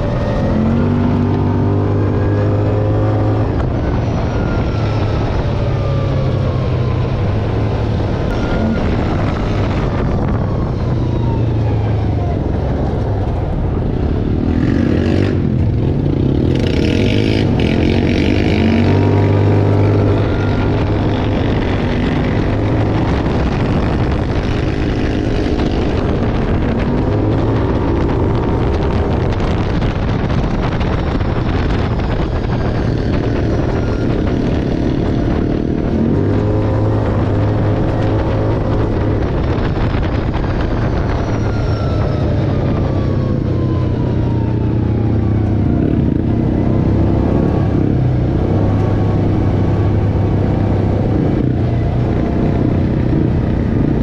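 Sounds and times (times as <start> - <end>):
vehicle engine revving: 0.0 - 11.4, 12.7 - 54.0.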